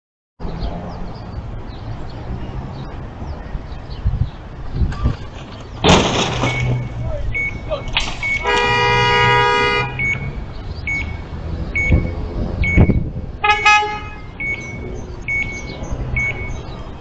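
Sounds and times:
street traffic rumble: 0:00.4 - 0:17.0
car horn short toots: 0:07.5 - 0:10.2, 0:13.4 - 0:14.3
car horn long blast: 0:08.4 - 0:10.1, 0:13.4 - 0:14.4.

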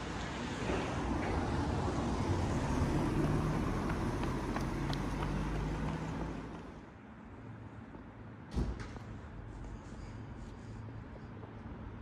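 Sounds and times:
street traffic: 0:00.0 - 0:12.0
vehicle engine humming: 0:01.6 - 0:06.9.

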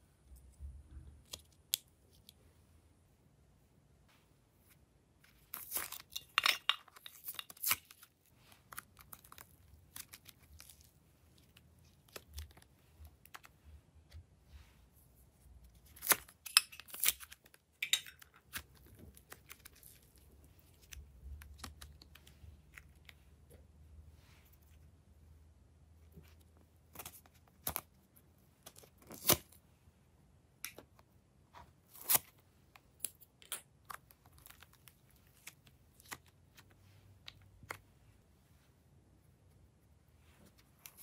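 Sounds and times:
clay crackling and tearing: 0:05.2 - 0:14.7, 0:15.5 - 0:23.5, 0:26.1 - 0:29.6, 0:30.7 - 0:38.2, 0:40.2 - 0:41.0.

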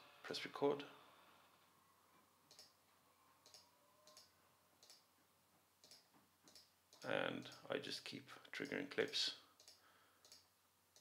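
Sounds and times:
faint mouse clicks: 0:02.5 - 0:02.8, 0:03.4 - 0:05.1, 0:05.8 - 0:07.6, 0:08.6 - 0:11.0.

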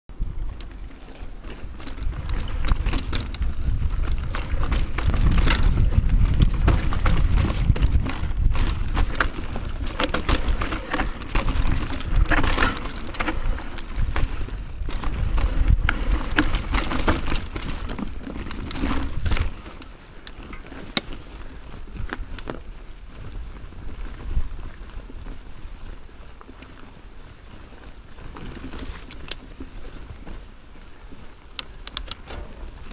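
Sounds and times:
wind buffeting microphone: 0:00.1 - 0:20.4, 0:21.3 - 0:26.1
bike clicking and rattling: 0:00.1 - 0:32.9.

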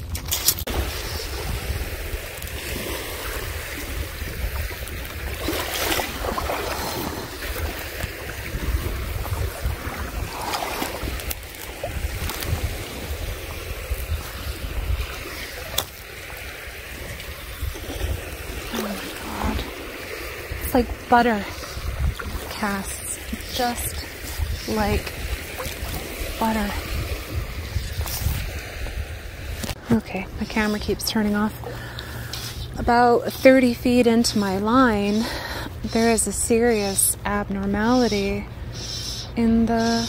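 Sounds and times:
wind rumbling on microphone: 0:00.0 - 0:40.0
waves washing on pebble shore: 0:00.5 - 0:29.8.

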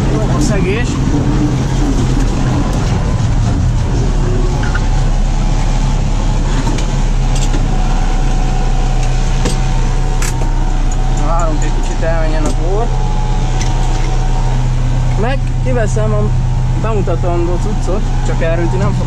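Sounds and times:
steady high whine: 0:00.0 - 0:19.0
tractor engine under load: 0:00.0 - 0:19.0.

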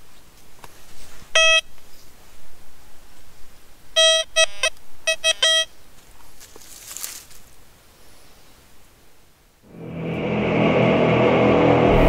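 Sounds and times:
metal detector beeps: 0:01.4 - 0:01.7, 0:04.0 - 0:05.7.

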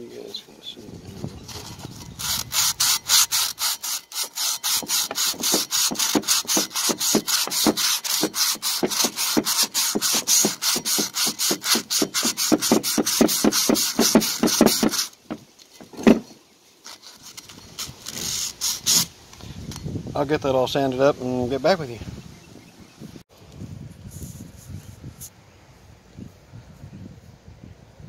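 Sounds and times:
sandpaper rubbing on metal: 0:01.4 - 0:15.2, 0:16.9 - 0:19.1.

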